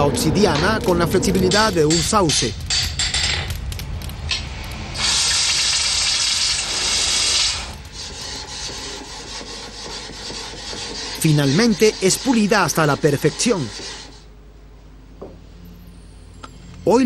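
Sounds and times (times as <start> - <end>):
loud hiss: 4.8 - 8.6.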